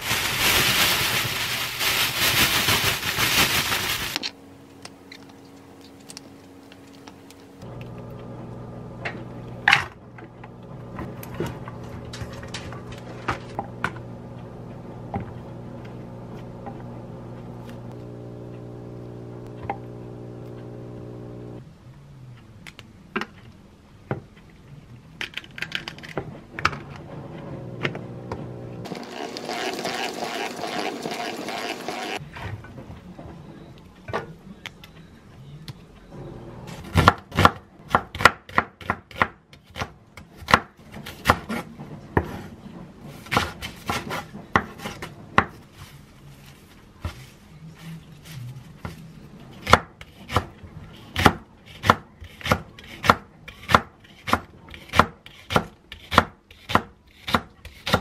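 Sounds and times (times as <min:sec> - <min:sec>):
salad spinner whirring: 0:27.6 - 0:32.2.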